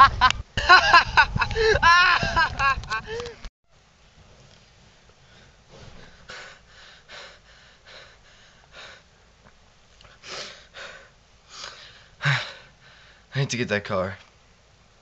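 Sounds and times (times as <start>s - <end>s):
person breathing: 5.2s - 9.1s, 10.1s - 13.3s.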